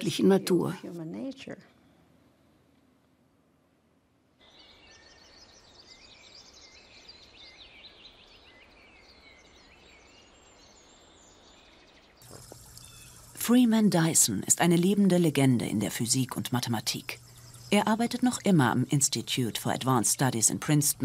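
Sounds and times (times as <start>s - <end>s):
birds chirping and singing: 4.5s - 13.3s
soft steady background rush: 12.2s - 21.0s.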